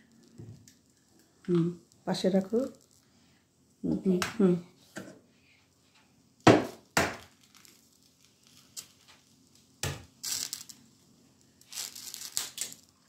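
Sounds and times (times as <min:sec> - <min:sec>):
eggshell crackling apart: 0:06.9 - 0:13.0.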